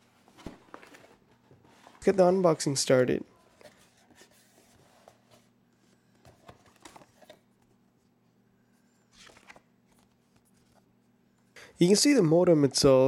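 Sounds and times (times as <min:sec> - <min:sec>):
paper rustling: 0:09.1 - 0:10.9.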